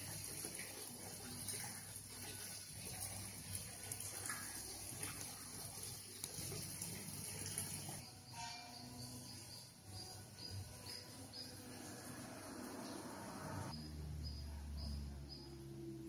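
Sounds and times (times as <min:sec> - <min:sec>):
running water: 0:00.0 - 0:08.0.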